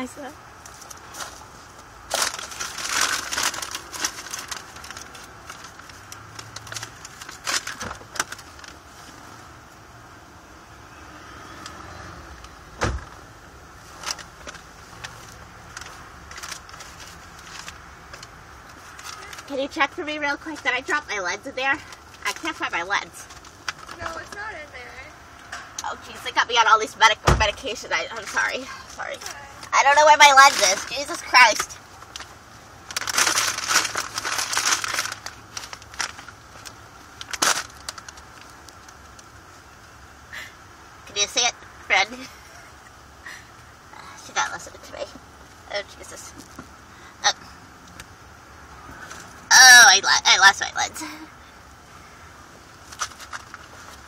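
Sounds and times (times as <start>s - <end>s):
paper bag rustling: 0.8s - 9.2s, 30.3s - 38.9s
loud thump: 12.8s - 13.2s.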